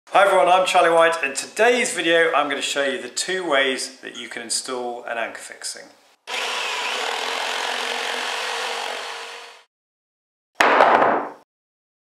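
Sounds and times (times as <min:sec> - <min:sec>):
tool rasping along wood: 0:06.3 - 0:09.7.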